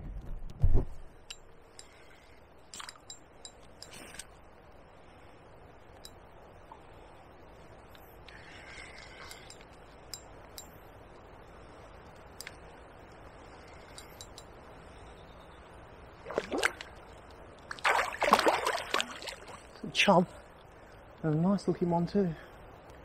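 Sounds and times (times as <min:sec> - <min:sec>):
light ticks: 0:09.2 - 0:10.8, 0:12.1 - 0:14.5
fish splashing at surface: 0:17.7 - 0:19.7.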